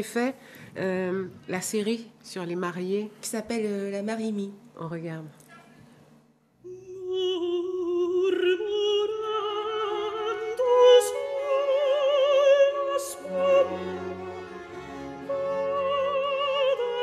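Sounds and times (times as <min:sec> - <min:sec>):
operatic singing voice: 0:06.7 - 0:17.0
soft accompaniment: 0:06.7 - 0:17.0.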